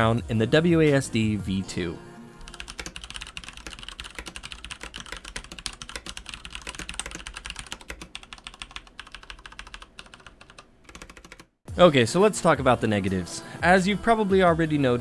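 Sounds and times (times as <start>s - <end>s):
fast typing on mechanical keyboard: 2.5s - 11.5s.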